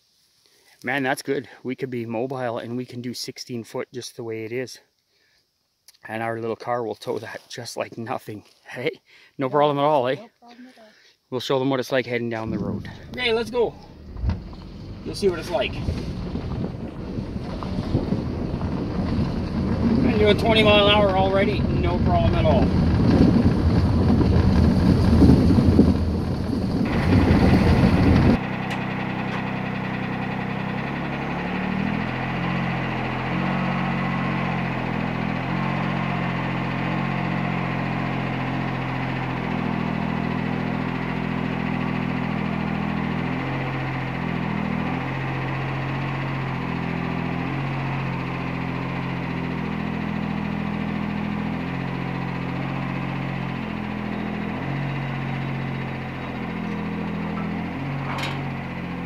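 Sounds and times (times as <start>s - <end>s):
utility vehicle engine running: 12.3s - 59.0s
road and wind noise in car: 12.4s - 29.6s.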